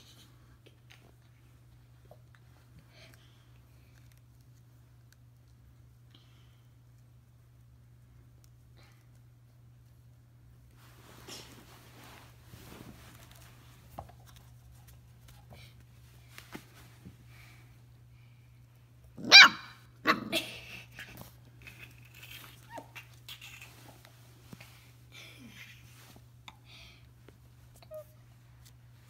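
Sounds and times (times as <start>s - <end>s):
puppy barking: 19.2s - 20.4s.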